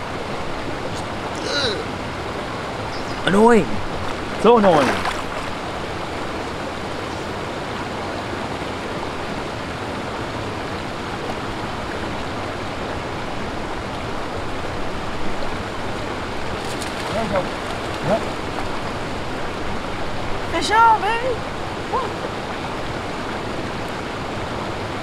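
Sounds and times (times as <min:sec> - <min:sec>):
river flowing: 0:00.0 - 0:25.0.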